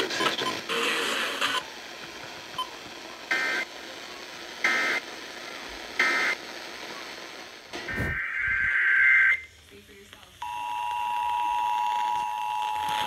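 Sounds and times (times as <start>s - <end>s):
data tone bursts over radio: 2.5s - 3.7s, 4.6s - 5.1s, 6.0s - 7.2s, 7.8s - 9.6s.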